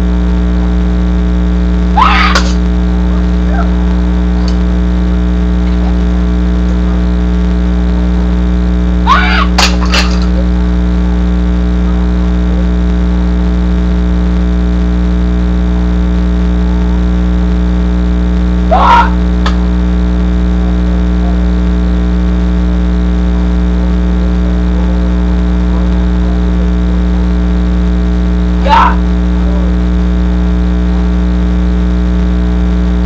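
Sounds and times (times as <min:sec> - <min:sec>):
loud electrical hum: 0:00.0 - 0:33.0
rising shout-like sound: 0:02.0 - 0:02.6, 0:09.0 - 0:09.6, 0:18.7 - 0:19.3, 0:28.6 - 0:29.1.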